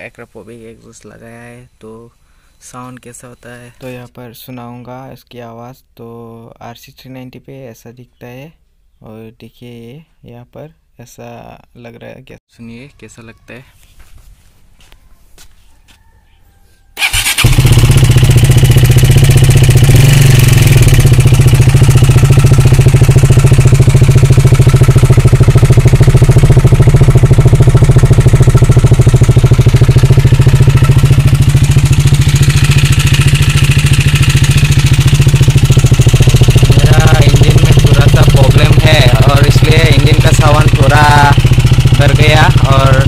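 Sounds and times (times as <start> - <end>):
motorcycle engine starting and idling: 17.0 - 43.0.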